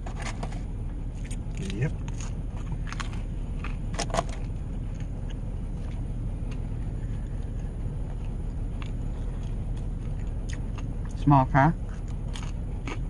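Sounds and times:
low rumble in vehicle cabin: 0.0 - 13.0.

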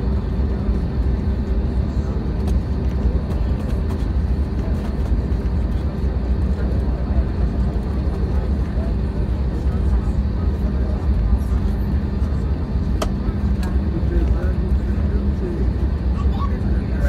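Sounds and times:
aircraft cabin low rumble: 0.0 - 17.0
steady engine hum: 0.0 - 17.0.

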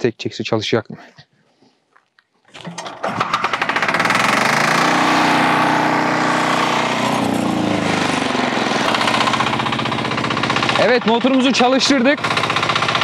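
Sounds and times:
rope pull starting engine: 2.5 - 13.0
single-cylinder engine running: 2.7 - 13.0.

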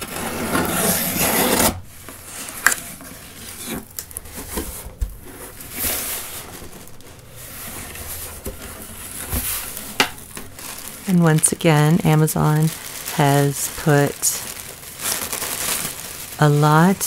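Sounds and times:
cardboard box rasping: 0.0 - 10.0
cardboard scraping and rubbing: 0.0 - 10.9.

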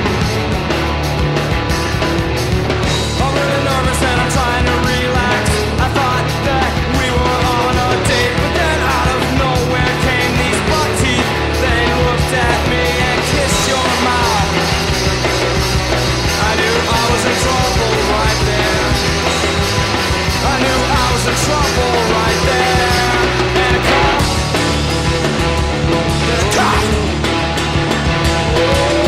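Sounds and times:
math rock band playing: 0.0 - 29.0.

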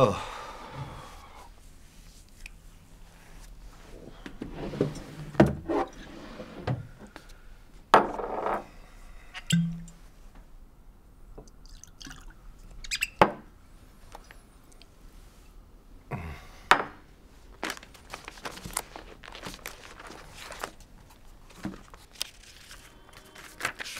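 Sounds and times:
light glass clinks and taps: 9.5 - 10.0
liquid pouring: 11.6 - 12.4.

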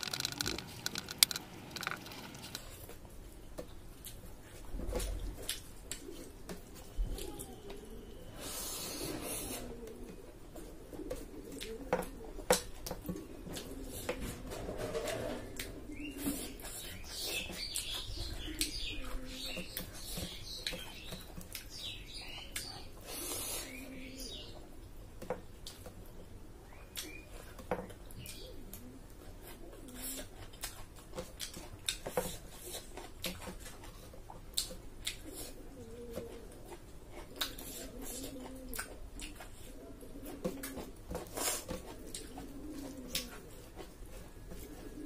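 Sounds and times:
fingers mixing rice on plate: 0.0 - 4.2
chewing and lip smacking: 29.8 - 35.6, 36.3 - 44.0.

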